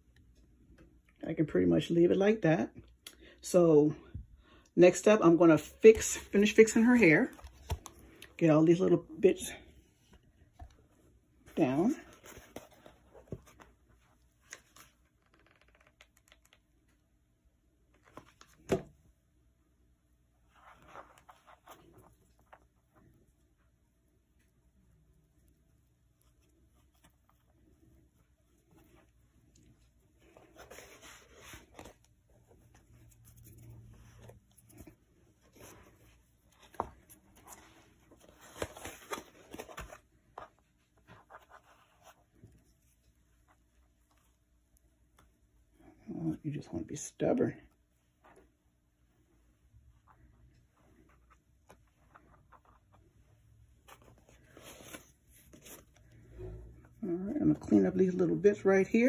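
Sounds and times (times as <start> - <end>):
small clicks and rustles: 12.2 - 17.0
fabric rustling and scraping: 26.2 - 46.1, 47.4 - 59.0.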